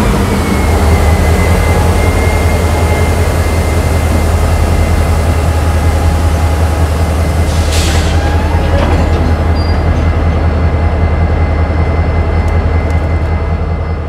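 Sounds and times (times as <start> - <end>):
diesel locomotives rumbling: 0.0 - 14.0.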